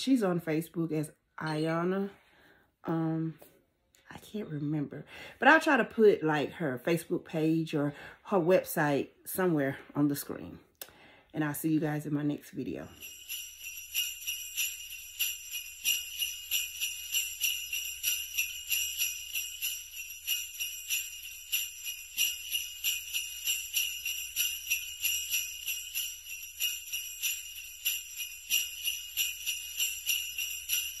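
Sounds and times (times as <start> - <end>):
sleigh bells jingling: 12.7 - 31.0.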